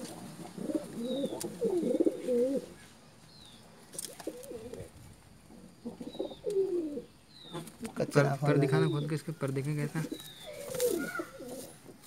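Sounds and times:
pigeons cooing: 0.0s - 2.8s, 3.9s - 12.0s.

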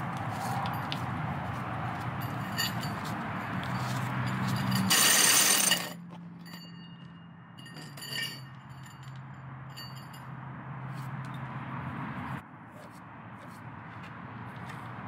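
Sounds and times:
sharp metallic clinks: 2.2s - 10.4s
drill with hole saw: 4.9s - 6.0s.

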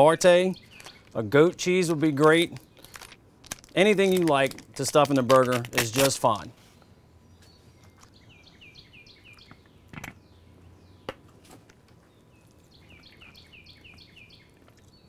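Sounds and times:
songbird singing: 0.0s - 3.0s, 6.1s - 15.0s.

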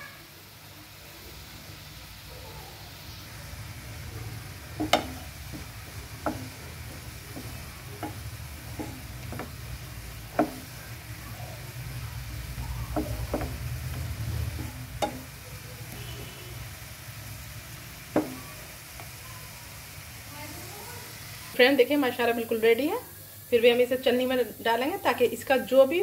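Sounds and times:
syrup bubbling: 1.9s - 21.5s
wooden spatula knocking on pan: 4.4s - 15.4s, 18.0s - 19.2s.

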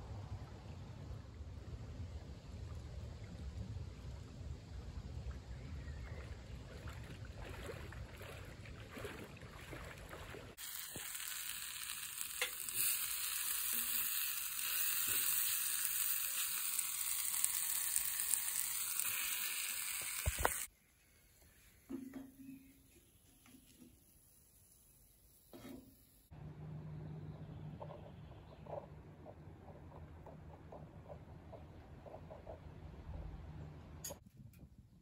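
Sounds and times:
low rumble of wind: 0.0s - 10.6s, 26.4s - 35.0s
fruit sizzling in a skillet: 10.6s - 20.7s.

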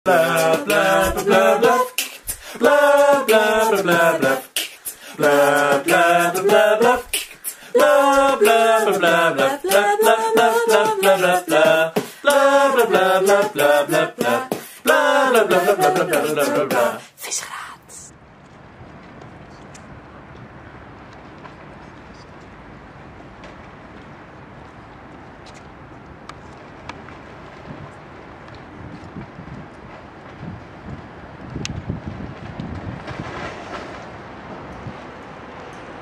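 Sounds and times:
person singing a cappella: 0.0s - 18.1s
clicking beat: 0.1s - 17.0s.

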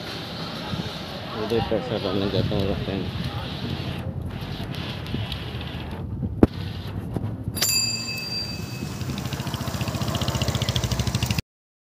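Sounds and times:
high bright ding: 7.6s - 9.2s.

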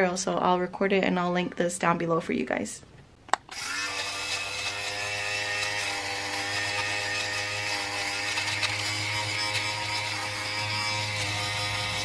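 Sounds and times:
electric fabric shaver buzzing: 3.5s - 12.0s.

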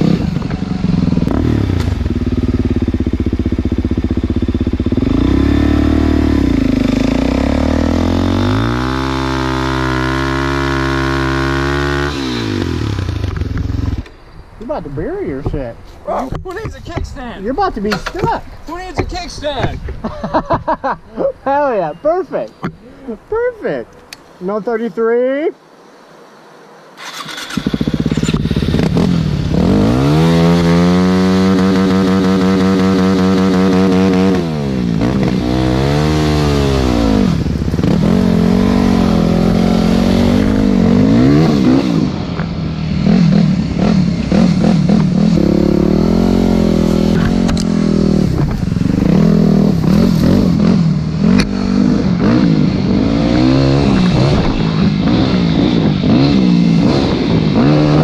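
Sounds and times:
dirt bike engine revving: 0.0s - 14.2s, 27.0s - 58.0s.

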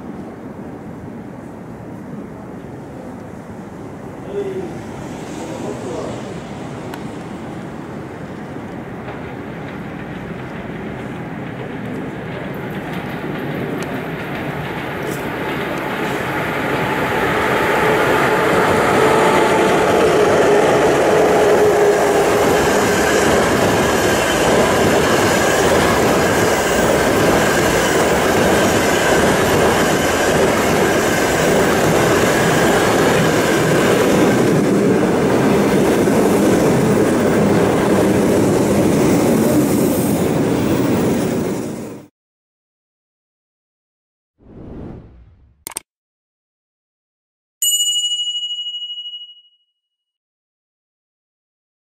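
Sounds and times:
train wheels rumbling on rails: 5.4s - 42.1s.

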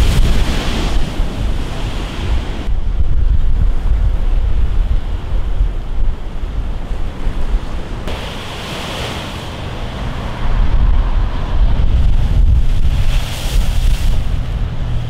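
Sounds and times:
wind buffeting microphone: 0.0s - 15.0s
surf breaking against sea wall: 7.9s - 14.8s.

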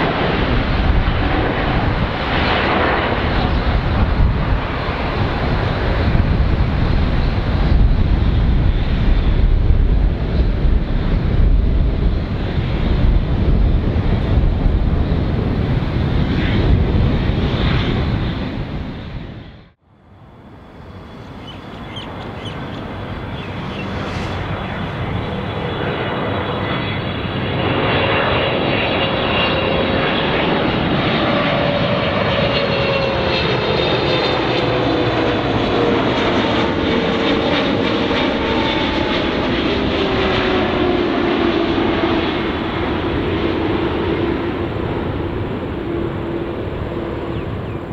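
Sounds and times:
airliner turbofans approaching: 0.0s - 47.9s
jet engine noise: 0.0s - 47.9s
high fan whine: 19.9s - 27.5s.

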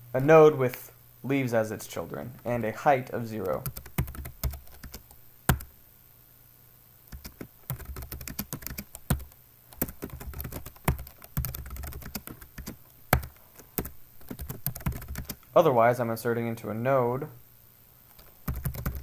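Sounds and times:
computer keyboard typing: 3.4s - 5.7s, 7.1s - 15.4s, 18.1s - 19.0s.

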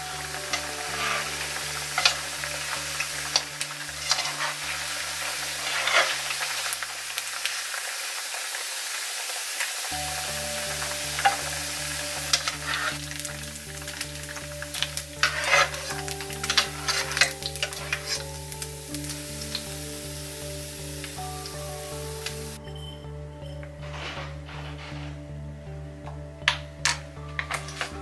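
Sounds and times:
food deep-frying in oil: 0.0s - 22.6s
metal skimmer scraping pot: 0.1s - 6.5s, 14.8s - 18.4s.

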